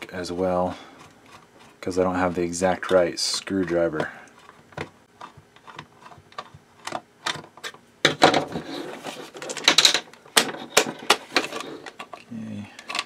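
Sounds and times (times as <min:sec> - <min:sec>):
screwdriver clicking and scraping: 0:05.2 - 0:07.8
plastic housing clattering: 0:09.4 - 0:13.0.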